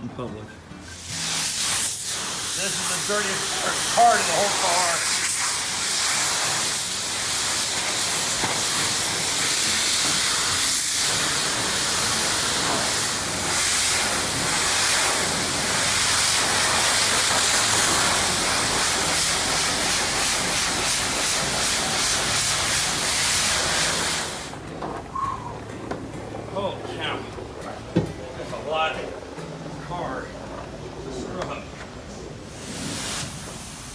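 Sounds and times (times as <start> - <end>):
pressure washer spray hissing: 0.8 - 24.6, 32.5 - 33.9.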